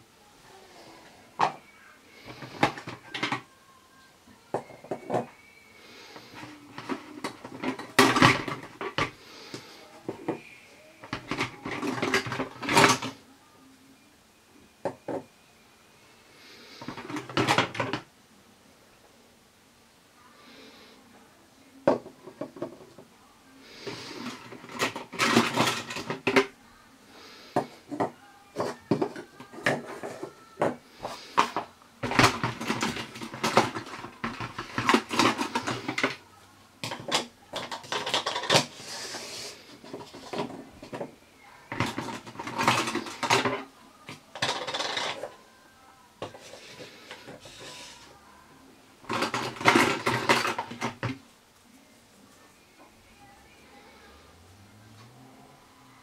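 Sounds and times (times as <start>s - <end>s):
plastic toy dishes clattering: 2.2s - 3.5s, 4.5s - 5.3s, 6.2s - 10.4s, 11.0s - 13.2s, 16.8s - 18.1s, 23.8s - 26.5s, 27.6s - 36.2s, 36.8s - 45.4s, 46.2s - 48.0s, 49.0s - 51.2s.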